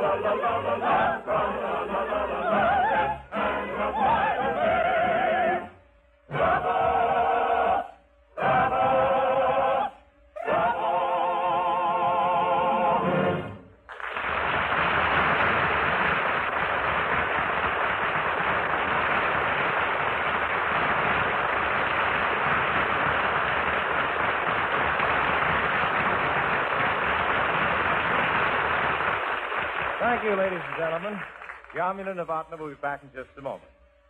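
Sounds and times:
audience applauding: 0:13.9 - 0:32.0.

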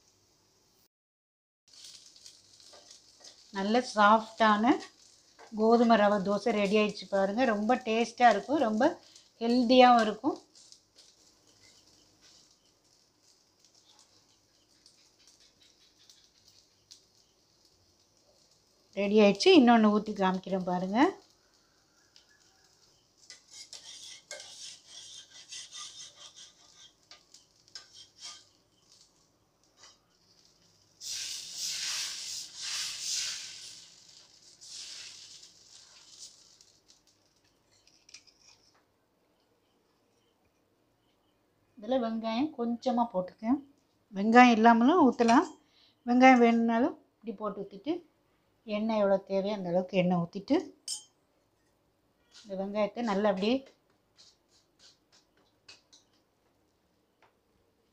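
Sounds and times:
dosa sizzling on a hot pan: 0:01.7 - 0:39.0, 0:52.2 - 0:57.4.

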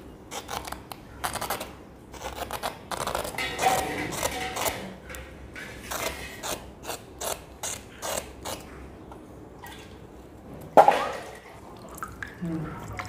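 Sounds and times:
vegetable peeler scraping skin: 0:00.3 - 0:08.7.

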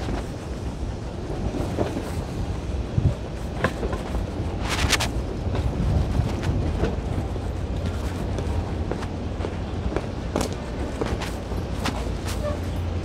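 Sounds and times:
low street rumble: 0:00.0 - 0:13.0.

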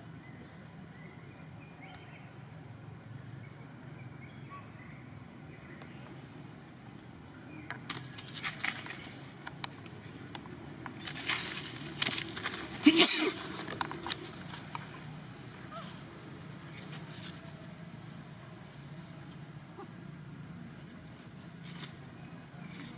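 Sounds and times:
faint birds: 0:00.0 - 0:22.9
faint insects: 0:00.0 - 0:22.9
rustling on leaf litter: 0:11.0 - 0:14.7.

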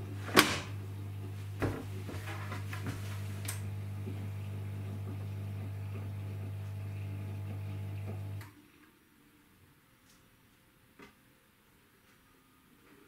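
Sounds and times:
washing machine rumbling: 0:00.0 - 0:08.4.

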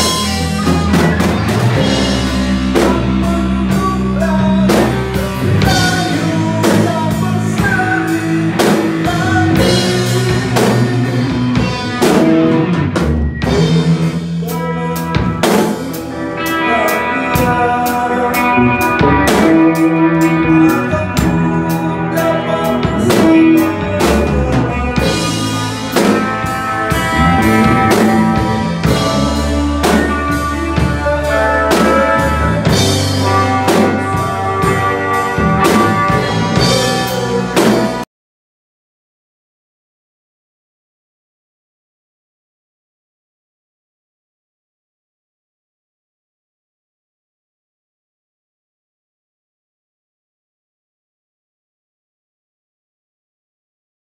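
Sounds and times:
drum kit beat: 0:00.0 - 0:38.1
rock band playing: 0:00.0 - 0:38.1.

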